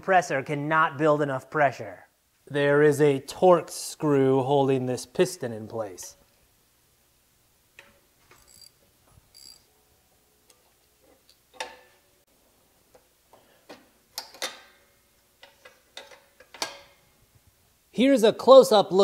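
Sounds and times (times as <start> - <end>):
socket ratchet clicking: 8.4 - 9.6.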